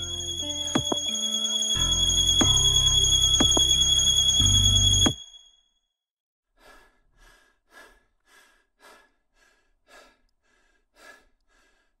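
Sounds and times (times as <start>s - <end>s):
quick human breathing: 6.6s - 12.0s.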